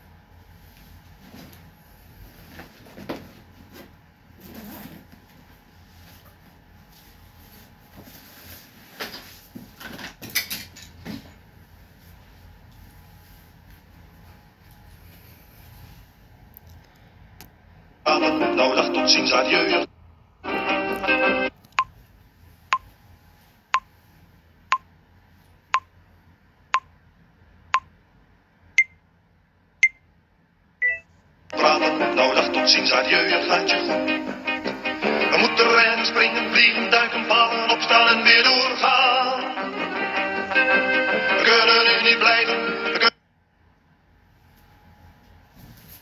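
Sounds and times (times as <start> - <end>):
clothes and bag rustling: 1.2 - 10.1
countdown timer beeps: 30.8 - 31.1
higher final beep: 30.8 - 31.1.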